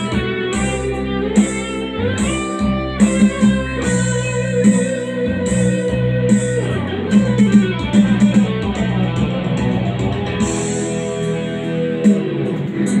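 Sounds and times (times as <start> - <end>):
backing track with drums and bass: 0.0 - 13.0
electric guitar lead melody: 0.0 - 13.0.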